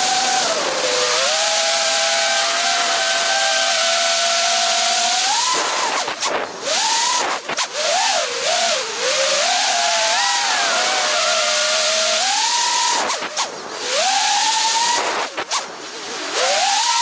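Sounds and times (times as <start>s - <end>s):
drone motors whining: 0.0s - 17.0s
propeller wash rushing: 0.0s - 17.0s.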